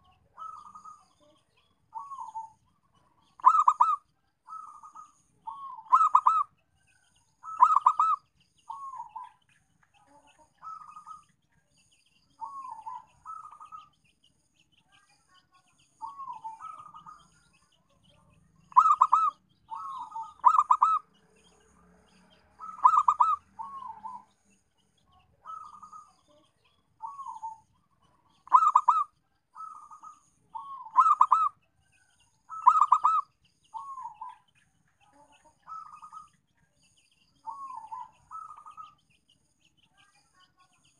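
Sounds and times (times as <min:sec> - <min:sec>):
dove cooing: 0:00.0 - 0:01.3, 0:01.9 - 0:06.5, 0:07.4 - 0:09.3, 0:12.4 - 0:13.9, 0:16.0 - 0:17.2, 0:18.7 - 0:21.1, 0:22.6 - 0:24.3, 0:25.4 - 0:26.1, 0:27.0 - 0:31.6, 0:32.5 - 0:34.4, 0:35.7 - 0:36.3, 0:37.4 - 0:38.9.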